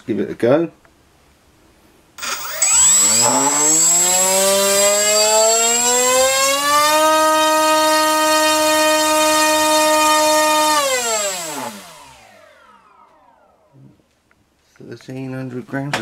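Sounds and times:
electric motor whine: 0:02.2 - 0:13.8.

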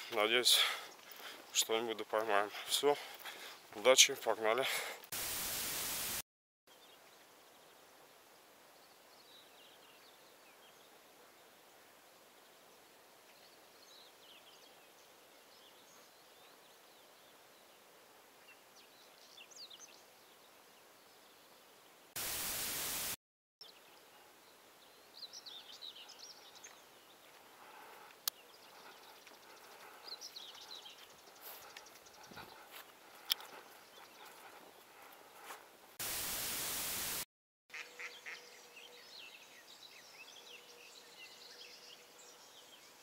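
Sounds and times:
songbirds chirping: 0:00.0 - 0:05.1, 0:06.7 - 0:22.2, 0:23.6 - 0:36.0, 0:37.7 - 0:43.0
faint steady hiss: 0:00.0 - 0:29.4, 0:35.4 - 0:37.2
loud hiss: 0:05.2 - 0:06.2, 0:22.2 - 0:23.2, 0:36.0 - 0:37.2.

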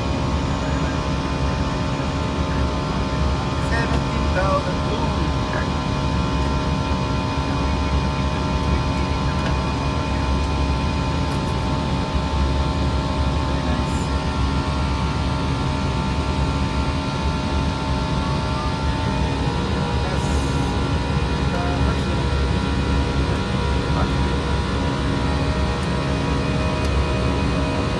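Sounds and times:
airflow and engine drone: 0:00.0 - 0:27.9
steady hum tones: 0:00.0 - 0:27.9.

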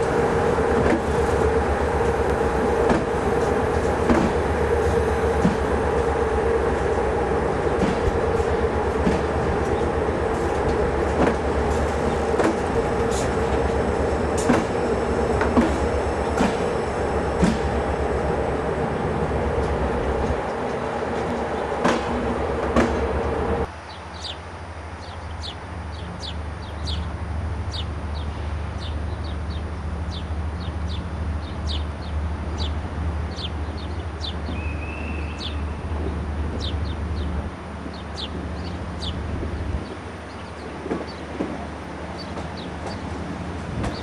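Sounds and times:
train wheels knocking over rail joints: 0:00.0 - 0:23.7, 0:40.7 - 0:44.0
locomotive low drone: 0:00.0 - 0:44.0.

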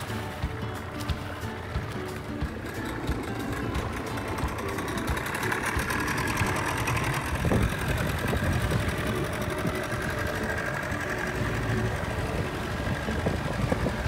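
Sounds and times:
outboard motor running: 0:00.0 - 0:14.0.

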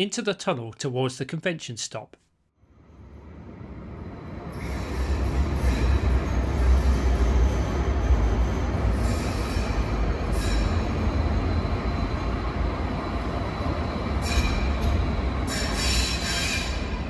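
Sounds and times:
tram deep rumble: 0:02.7 - 0:17.0
high-pitched wheel squeal: 0:08.3 - 0:12.2, 0:13.6 - 0:17.0.

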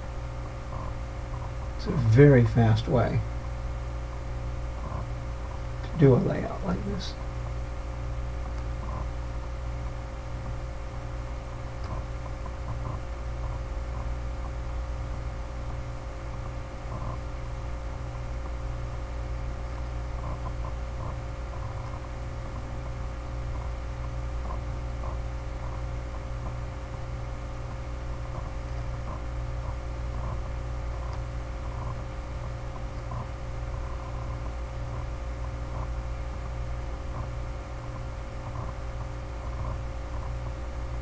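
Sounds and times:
electrical hum and hiss: 0:00.0 - 0:41.0
steady tones: 0:00.7 - 0:07.3.

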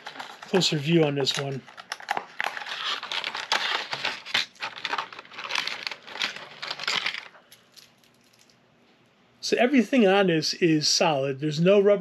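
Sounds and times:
packaging crinkling: 0:00.0 - 0:08.5.

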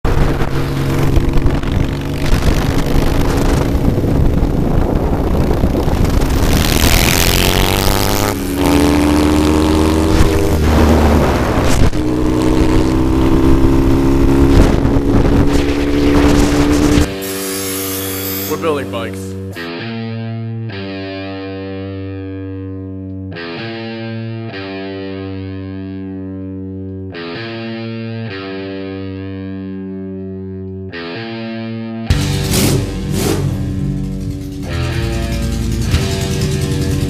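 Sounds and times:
rushing noise: 0:00.0 - 0:08.8, 0:13.7 - 0:17.5
motorcycle engine revving: 0:00.0 - 0:19.6, 0:32.1 - 0:37.0.

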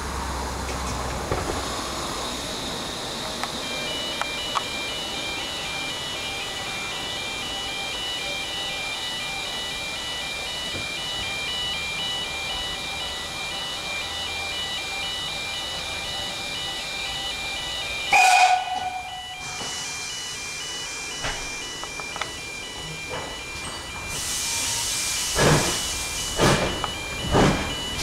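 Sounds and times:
alternating two-tone beeping: 0:02.1 - 0:28.0
steam locomotive whistle: 0:17.5 - 0:21.2.

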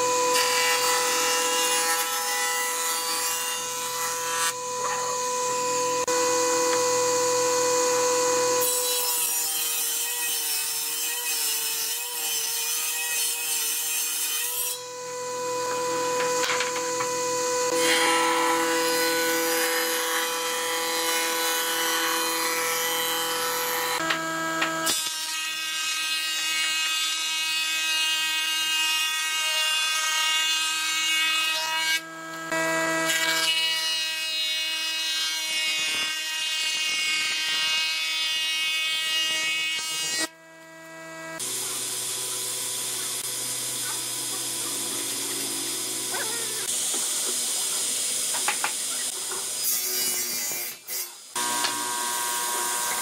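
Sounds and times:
planing machine cutting wood: 0:00.0 - 0:53.0
steady machine whine: 0:04.5 - 0:08.6, 0:14.8 - 0:17.8, 0:40.3 - 0:49.0.

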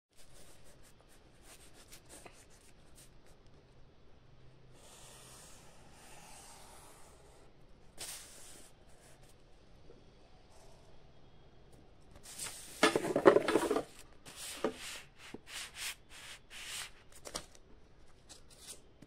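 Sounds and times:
pen scratching on paper: 0:04.8 - 0:07.4.

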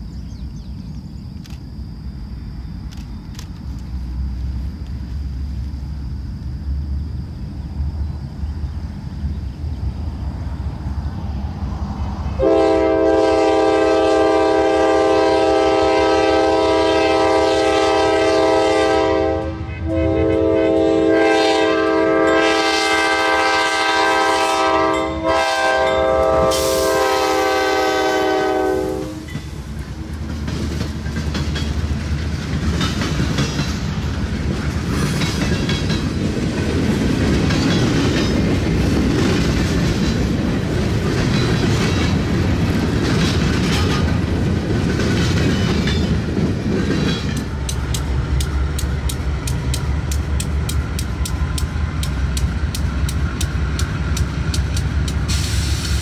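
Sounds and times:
locomotive air horn blasts: 0:12.4 - 0:29.4
train wheels clattering over rail joints: 0:29.3 - 0:56.0.

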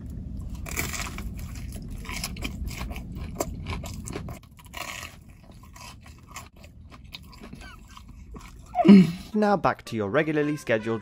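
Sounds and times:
crunching fried batter: 0:00.1 - 0:08.8
quiet chewing: 0:00.4 - 0:09.3.

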